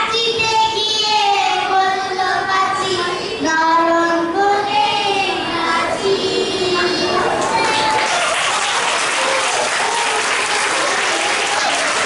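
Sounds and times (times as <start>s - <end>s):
children singing into a microphone: 0.0s - 8.1s.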